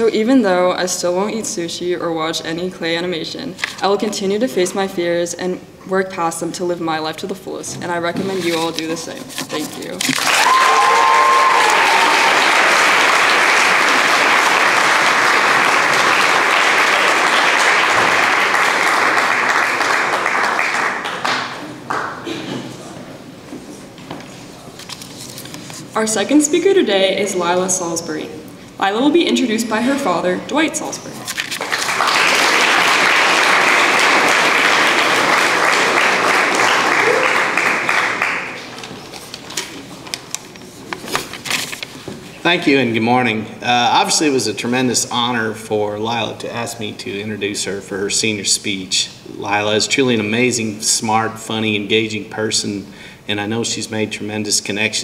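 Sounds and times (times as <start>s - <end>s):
audience applauding: 10.1s - 22.3s, 31.4s - 39.4s.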